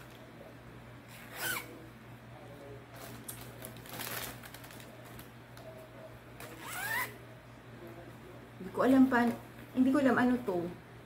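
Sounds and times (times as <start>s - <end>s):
steady low hum: 0.0s - 11.0s
plastic wrapper rustling and crinkling: 2.9s - 5.7s.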